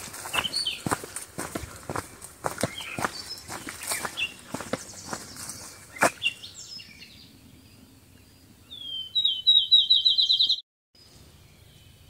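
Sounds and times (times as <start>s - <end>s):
songbird singing: 0.0s - 12.0s
faint bird chirps: 2.7s - 12.0s.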